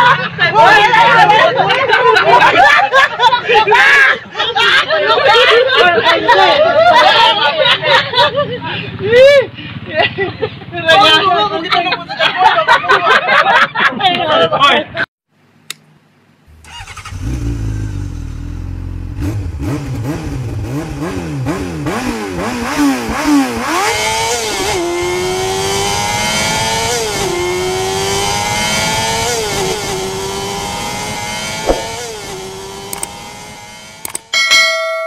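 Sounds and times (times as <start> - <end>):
engine revving and accelerating: 16.5 - 34.1
sharp click: 31.6 - 32.0, 32.9 - 33.1, 34.0 - 34.3.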